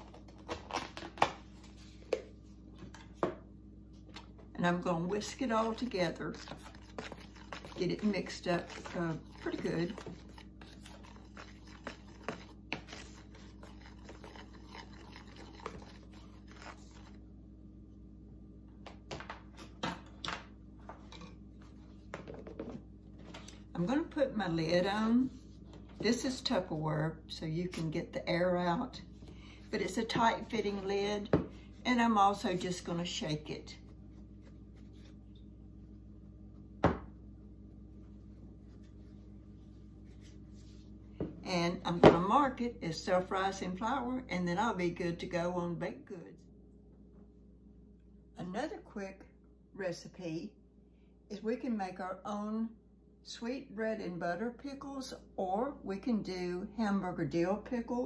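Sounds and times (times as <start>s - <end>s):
whisk stirring flour: 5.0s - 17.2s.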